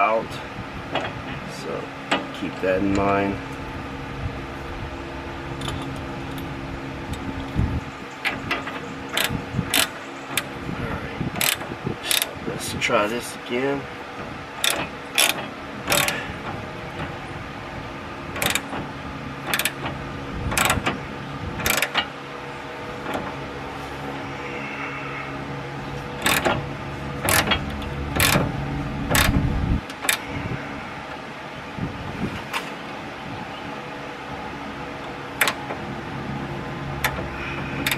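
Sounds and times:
steady hum: 0.0 - 37.9
hand ratchet clicking: 9.1 - 10.5, 11.4 - 12.3, 14.6 - 16.2, 18.4 - 18.7, 19.4 - 19.8, 20.5 - 21.0, 21.6 - 22.1, 26.2 - 26.6, 27.2 - 28.5, 29.1 - 30.2.

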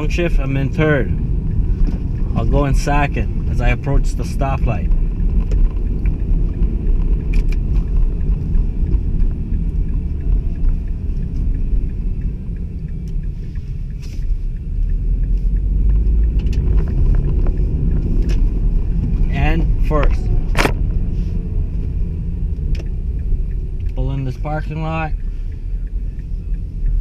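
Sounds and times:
car interior road and engine rumble: 0.0 - 27.0.

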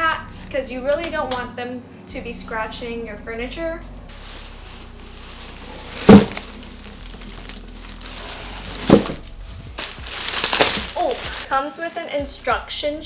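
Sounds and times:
plastic wrapping crinkling: 4.1 - 12.1.

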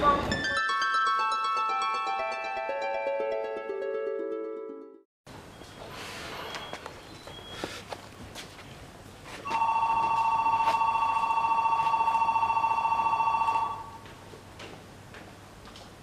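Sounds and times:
electric bell ringing: 9.5 - 14.0.

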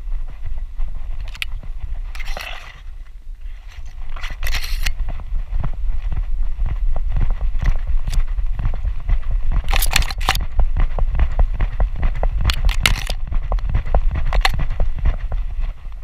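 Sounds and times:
running steps knocks and thuds: 0.0 - 2.6, 4.0 - 16.0
grass brushing against camera: 0.0 - 16.0.

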